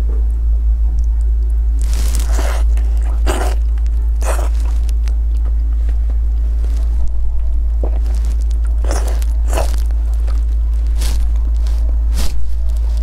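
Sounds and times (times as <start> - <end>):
low hum: 0.0 - 13.0
chewing with mouth clicks: 1.0 - 13.0
meat pulled apart by hand: 1.8 - 5.2.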